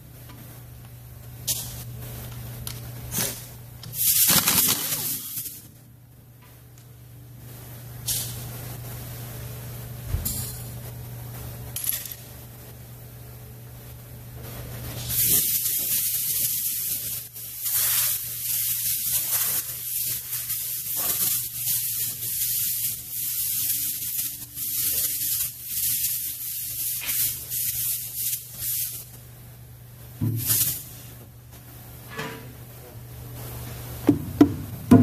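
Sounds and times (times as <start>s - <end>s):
pressurised spray hissing: 15.0s - 29.1s, 30.3s - 31.1s.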